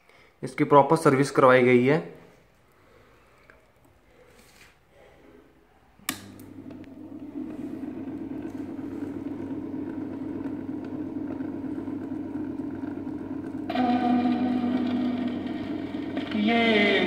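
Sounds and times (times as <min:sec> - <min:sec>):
record player motor hum: 0:06.0 - 0:17.0
record player switch click: 0:06.1 - 0:06.8.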